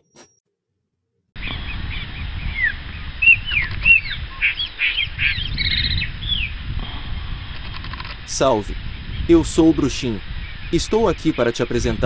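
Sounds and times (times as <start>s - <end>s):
bird chirping and whistling: 1.4s - 6.5s
steady low rumble: 1.4s - 10.8s.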